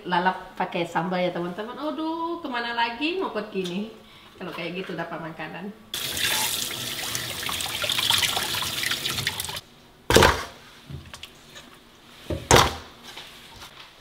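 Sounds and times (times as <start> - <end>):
tap water running: 6.0 - 9.6.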